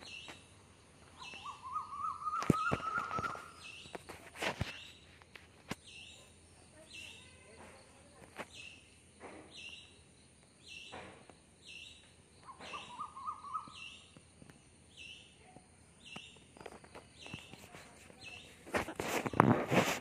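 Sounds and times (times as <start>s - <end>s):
lower warbling bird call: 1.2s - 3.8s, 12.4s - 14.1s.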